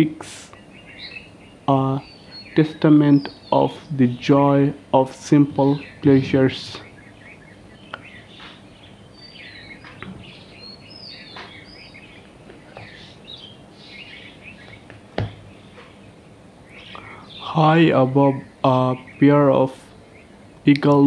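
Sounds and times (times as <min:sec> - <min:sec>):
faint hiss: 0:00.0 - 0:00.6
small birds chirping: 0:00.0 - 0:21.0.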